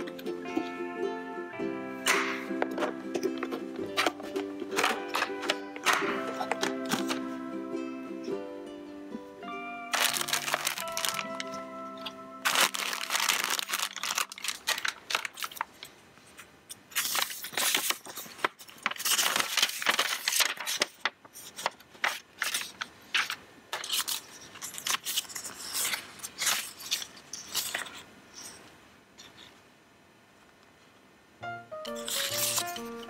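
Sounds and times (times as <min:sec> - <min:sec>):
plastic and paper crinkling: 0:02.7 - 0:07.3, 0:09.9 - 0:28.6, 0:31.9 - 0:33.0.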